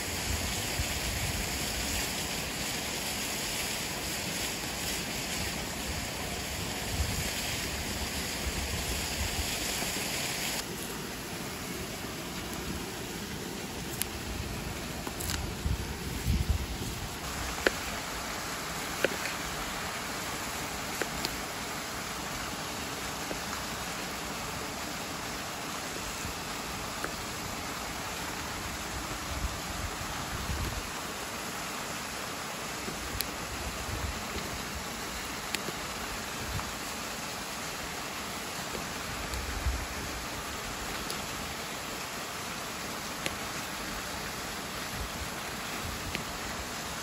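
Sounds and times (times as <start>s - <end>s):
waterfall rushing: 0.0s - 47.0s
wood fire crackling: 0.9s - 22.4s.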